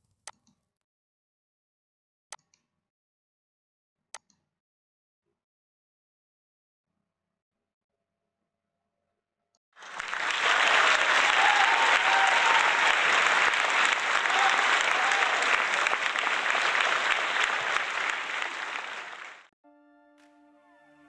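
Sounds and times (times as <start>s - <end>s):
crowd applause: 9.8s - 19.5s.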